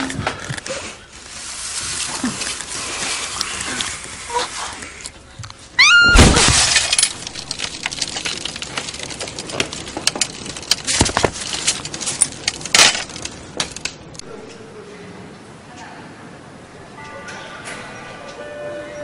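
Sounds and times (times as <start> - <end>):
glass pane smashing: 5.9 - 13.8
glass pieces clinking: 6.4 - 13.8.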